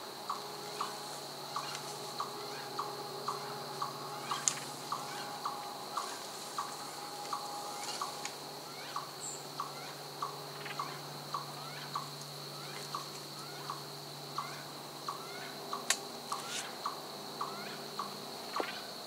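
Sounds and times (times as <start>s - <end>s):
high-pitched woodland drone: 0.0s - 19.0s.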